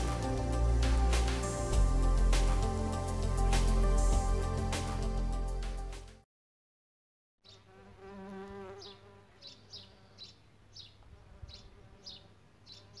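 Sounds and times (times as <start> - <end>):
bird chirping: 7.4 - 7.7, 8.6 - 13.0
flying insect buzzing: 7.5 - 10.2.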